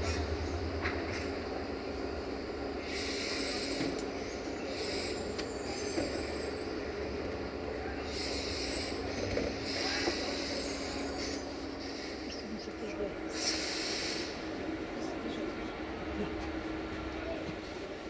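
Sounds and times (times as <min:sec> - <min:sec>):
train engine running: 0:00.0 - 0:18.0
short air hisses: 0:08.1 - 0:12.4, 0:13.3 - 0:14.4.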